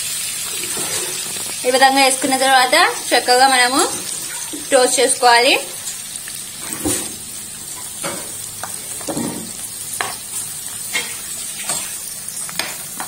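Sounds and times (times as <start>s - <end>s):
vegetables sizzling in oil: 0.0s - 13.0s
ladle scraping pan: 0.6s - 1.4s.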